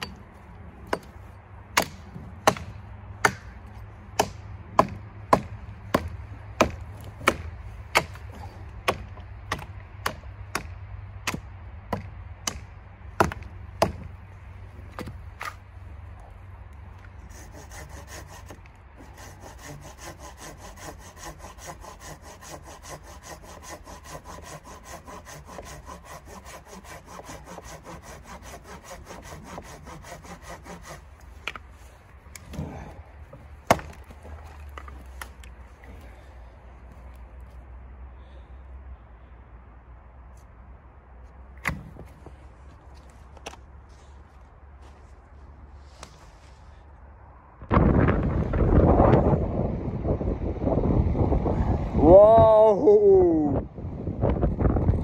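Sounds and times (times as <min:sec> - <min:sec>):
hatchet chopping a log: 0:00.0 - 0:14.1, 0:14.9 - 0:15.6, 0:17.3 - 0:31.7, 0:32.3 - 0:35.5, 0:41.6 - 0:42.2
hand saw cutting a log: 0:00.9 - 0:01.2, 0:01.8 - 0:03.6, 0:04.2 - 0:10.7, 0:17.1 - 0:36.0.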